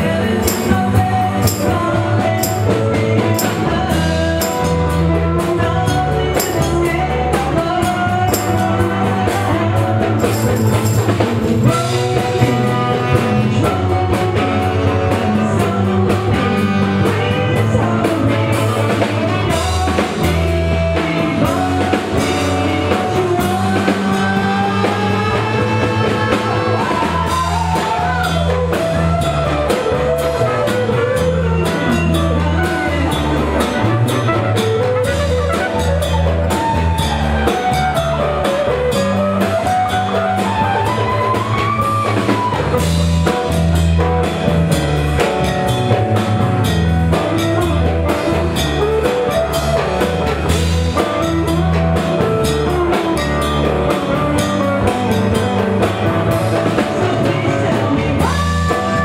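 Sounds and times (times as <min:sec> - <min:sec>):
drum kit: 0:00.0 - 0:59.0
live dance band playing: 0:00.0 - 0:59.0
repeating bass line: 0:00.0 - 0:59.0
trumpets: 0:29.6 - 0:37.9.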